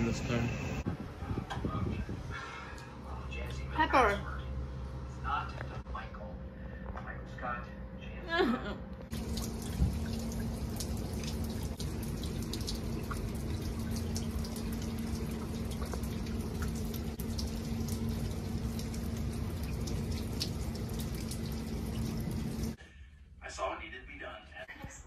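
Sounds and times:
steady low hum: 0.0s - 24.8s
small splashing ticks: 9.1s - 22.7s
water running: 9.1s - 22.8s.

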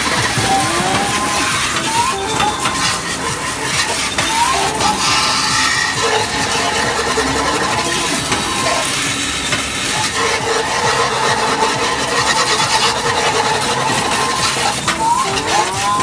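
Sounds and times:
arcade game electronic tones: 0.0s - 16.0s
held beeping tones: 0.0s - 16.0s
machine noise: 0.0s - 16.0s.

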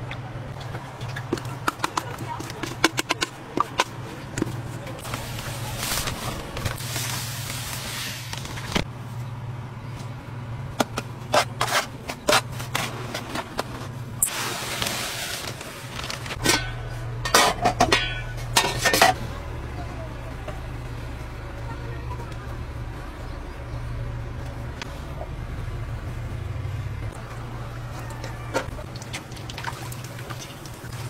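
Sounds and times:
utensils clinking on metal trays: 16.0s - 19.2s.

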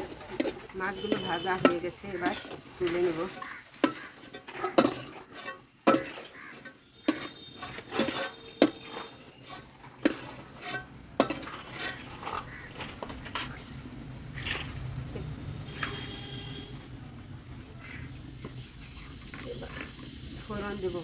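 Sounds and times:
metal spatula scraping metal pan: 0.0s - 13.7s.

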